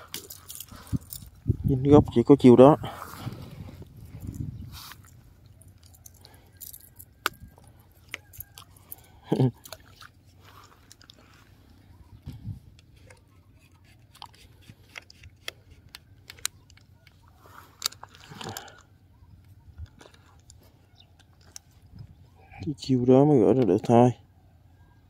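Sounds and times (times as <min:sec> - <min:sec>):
fishing reel clicks and rustles: 0:00.0 - 0:01.4, 0:04.2 - 0:11.8, 0:12.6 - 0:18.9.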